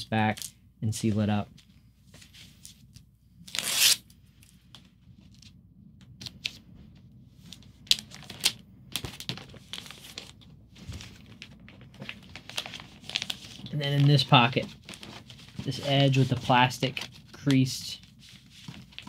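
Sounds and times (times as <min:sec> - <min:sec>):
plastic sleeves rustling: 0:06.2 - 0:19.0.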